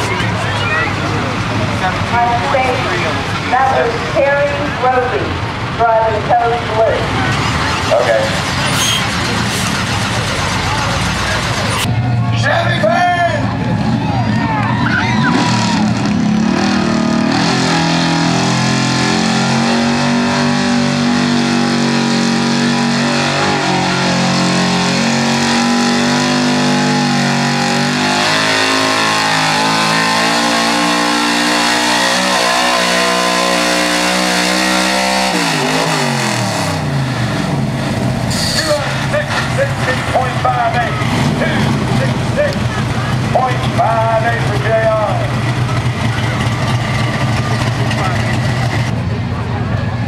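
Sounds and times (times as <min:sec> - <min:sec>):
pickup engine revving hard: 0:15.2 - 0:43.8.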